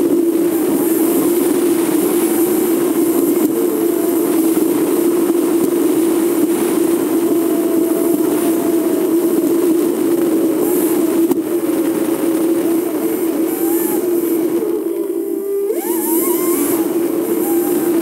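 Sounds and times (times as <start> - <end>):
vehicle road and engine drone: 0.0 - 18.0.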